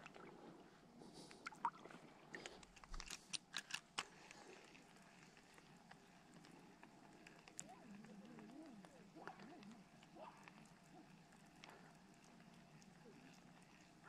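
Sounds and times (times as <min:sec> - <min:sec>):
fishing reel handling clicks: 0:02.4 - 0:05.4.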